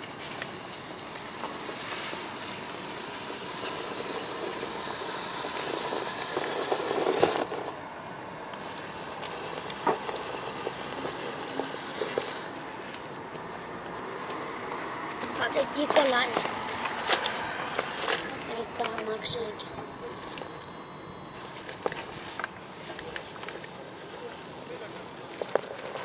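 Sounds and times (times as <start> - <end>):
toy car motor whirring: 0.0 - 26.0
tyres scrabbling on rock: 3.6 - 7.8.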